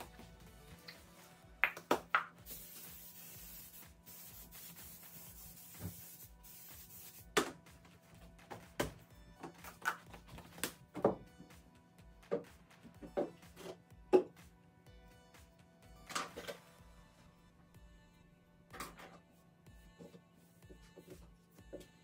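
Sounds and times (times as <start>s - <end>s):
quiet background music: 0.0s - 22.0s
spray hissing: 2.5s - 7.2s.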